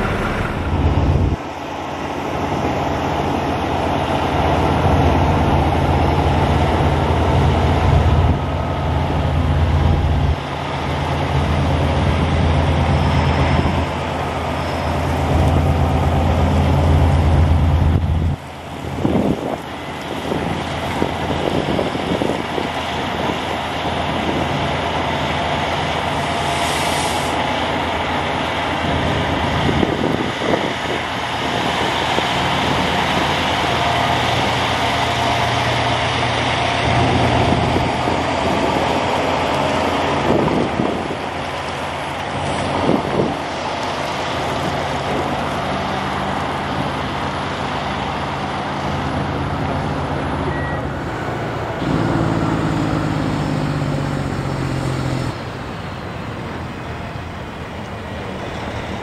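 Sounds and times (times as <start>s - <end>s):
truck diesel engine running: 0.0s - 59.0s
brief hiss: 26.4s - 27.4s.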